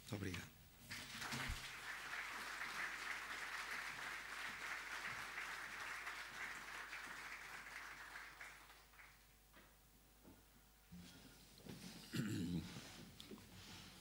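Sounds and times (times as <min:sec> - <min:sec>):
audience applauding: 0:00.9 - 0:09.4.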